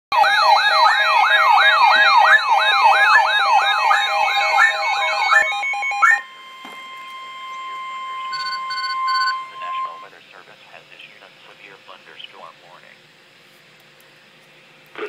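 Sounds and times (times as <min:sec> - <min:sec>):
siren-like rising sweep: 0:00.1 - 0:10.1
beeping alert tones: 0:01.5 - 0:10.1.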